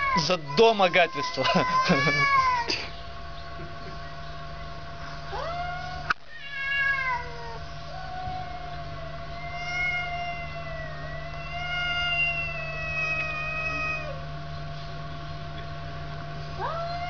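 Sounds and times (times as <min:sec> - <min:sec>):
cats yowling: 0:00.0 - 0:02.9, 0:05.2 - 0:14.4, 0:16.5 - 0:17.0
steady low hum: 0:00.0 - 0:17.0.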